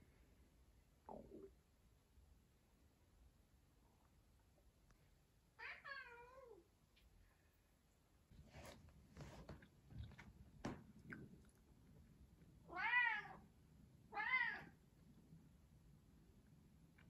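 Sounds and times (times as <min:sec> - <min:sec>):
cat meowing: 0:12.7 - 0:13.4, 0:14.1 - 0:14.7.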